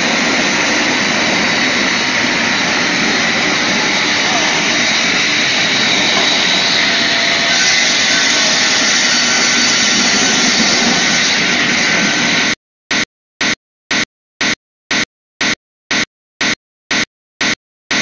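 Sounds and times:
table saw whirring: 0.0 - 12.6.

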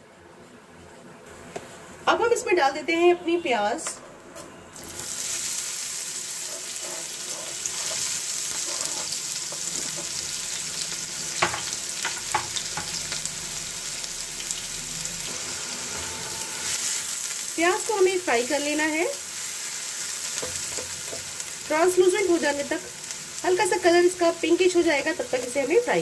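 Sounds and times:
onions sizzling in hot oil: 4.8 - 26.0.

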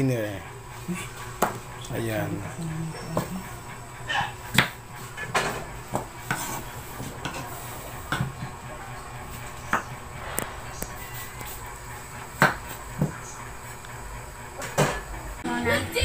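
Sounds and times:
low steady hum: 8.7 - 14.4.

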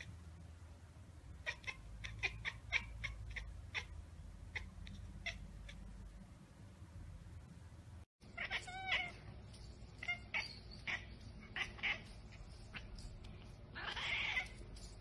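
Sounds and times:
cat chattering: 1.4 - 5.9, 8.3 - 9.3, 10.0 - 14.7.

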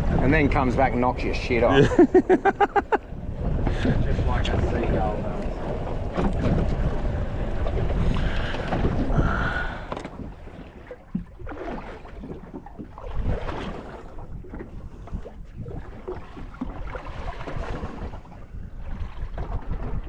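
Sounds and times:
water lapping against boat hull: 0.0 - 20.0
wind rumbling on microphone: 0.0 - 20.0
small splashes: 7.9 - 18.3.

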